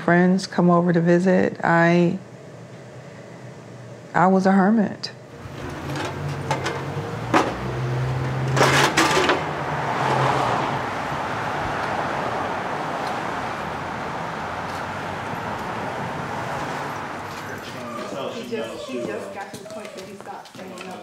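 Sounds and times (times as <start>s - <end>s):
street traffic rushing: 5.2s - 19.6s
clatter of knocks: 5.6s - 9.5s.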